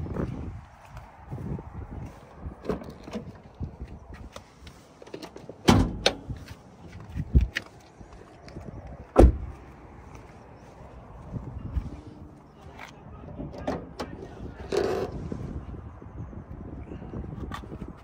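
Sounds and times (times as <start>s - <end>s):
car door thuds: 5.7s - 6.2s, 9.2s - 9.5s.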